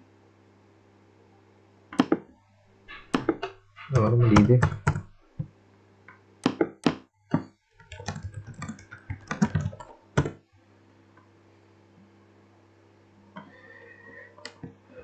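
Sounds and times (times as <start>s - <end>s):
faint low hum: 0.0s - 6.4s
typing on keyboard: 3.1s - 5.1s, 7.8s - 10.4s.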